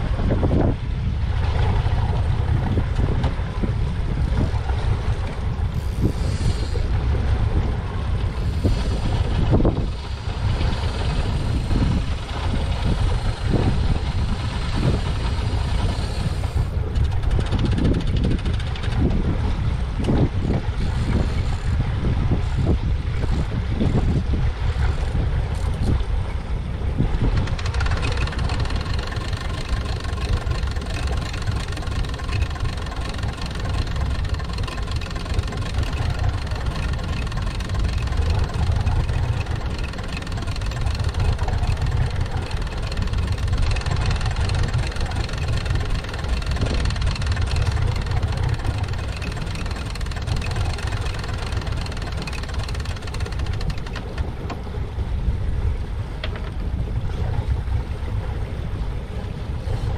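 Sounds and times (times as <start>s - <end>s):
boat engine droning: 0.0s - 59.9s
faint steady whine: 27.2s - 55.0s.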